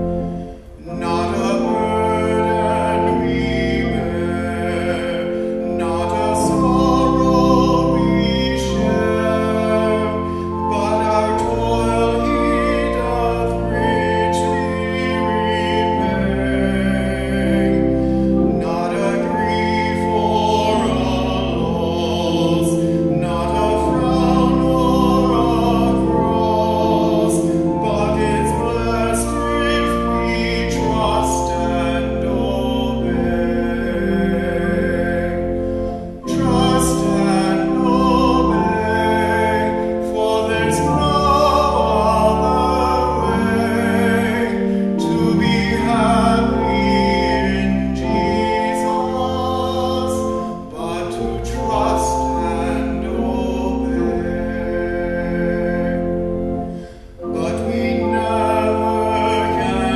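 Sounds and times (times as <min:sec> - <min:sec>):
person singing a hymn: 0:00.0 - 0:59.9
pipe organ chords: 0:00.0 - 0:59.9.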